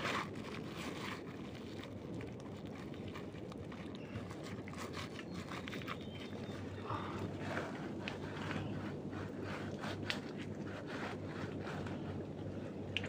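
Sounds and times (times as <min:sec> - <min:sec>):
hands digging in mud: 0:00.0 - 0:13.0
low background noise: 0:00.0 - 0:13.0.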